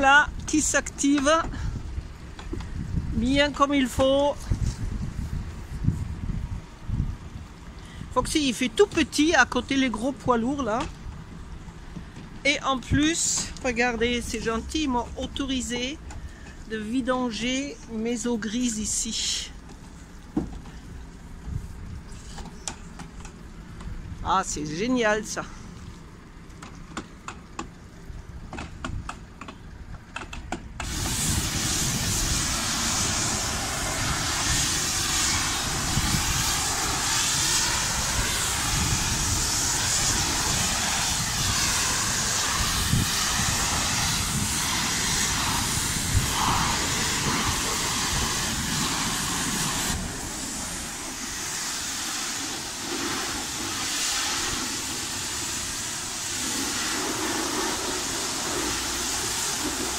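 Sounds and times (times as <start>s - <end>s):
pressure washer spraying: 30.8s - 59.9s.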